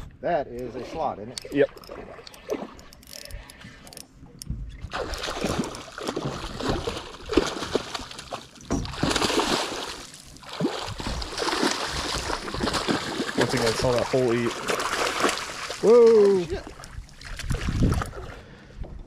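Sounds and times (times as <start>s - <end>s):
fishing reel clicking: 1.3s - 4.1s
fish thrashing and splashing: 4.8s - 18.4s.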